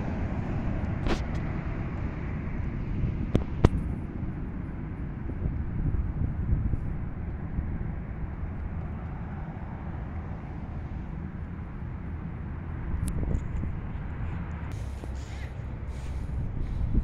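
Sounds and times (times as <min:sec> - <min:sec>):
distant jet engines rumbling: 0:00.0 - 0:17.0
wind buffeting microphone: 0:00.0 - 0:17.0.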